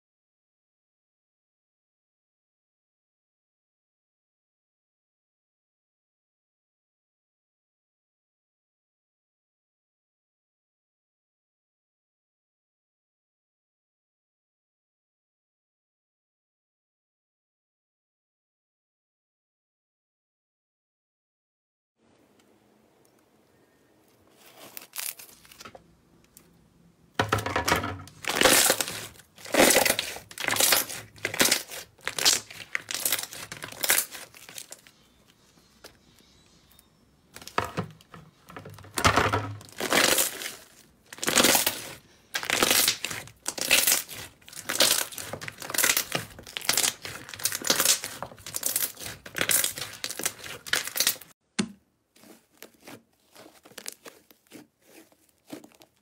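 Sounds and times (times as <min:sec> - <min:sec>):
hands squishing slime: 0:28.1 - 0:34.9, 0:39.7 - 0:51.3, 0:52.2 - 0:56.0.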